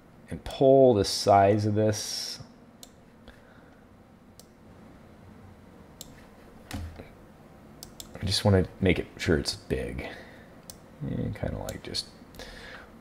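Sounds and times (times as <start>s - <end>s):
quiet room hum: 0.0s - 13.0s
computer mouse clicks: 7.8s - 8.2s.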